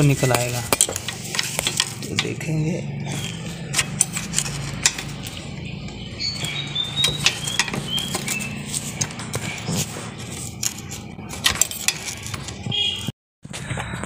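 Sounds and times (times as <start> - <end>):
screwdriver clicking on metal: 0.7 - 2.4, 3.7 - 5.4, 6.4 - 9.3, 10.4 - 12.6.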